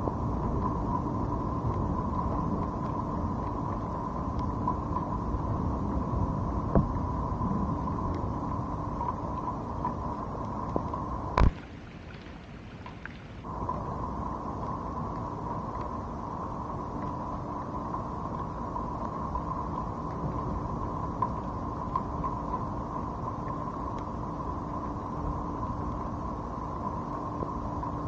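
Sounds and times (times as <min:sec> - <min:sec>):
rain and wind rumbling on microphone: 0:00.0 - 0:28.0
steady hum: 0:00.0 - 0:28.0
ticks of raindrops: 0:09.0 - 0:13.9.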